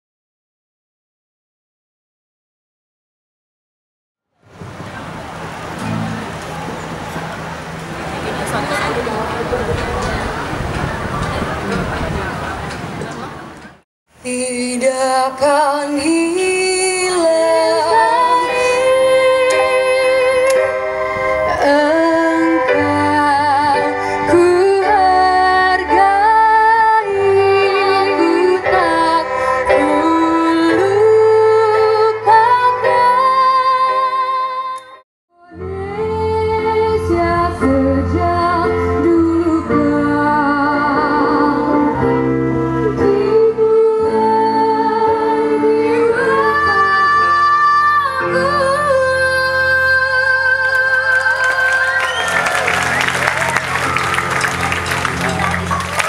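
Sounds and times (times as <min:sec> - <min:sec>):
acoustic guitars: 0:04.6 - 0:13.3
woman singing: 0:14.2 - 0:42.2, 0:42.8 - 0:52.2.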